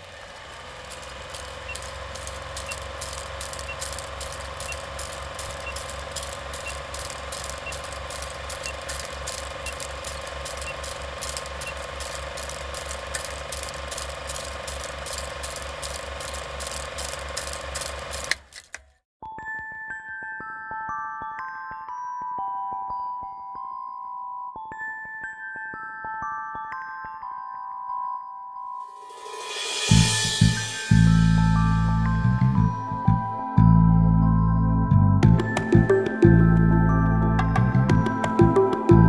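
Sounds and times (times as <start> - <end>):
film projector humming and clicking: 0.0 - 18.8, 35.2 - 39.0.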